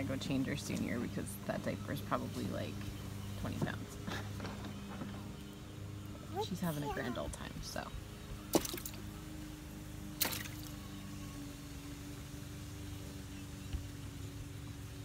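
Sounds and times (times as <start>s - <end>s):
faint steady hum: 0.0s - 15.0s
water splash: 8.5s - 9.0s, 10.2s - 10.7s.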